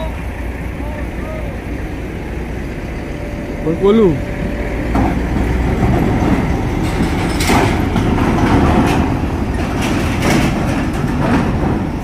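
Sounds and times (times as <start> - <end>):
bus diesel engine rumbling: 0.0 - 12.0
wheels clanking on steel plates: 0.0 - 12.0.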